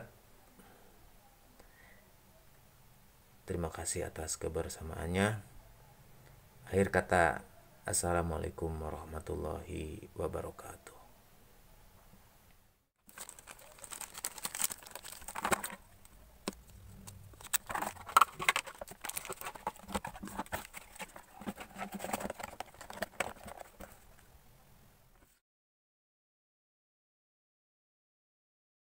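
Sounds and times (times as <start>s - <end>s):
plastic packaging crinkling: 13.1s - 24.2s.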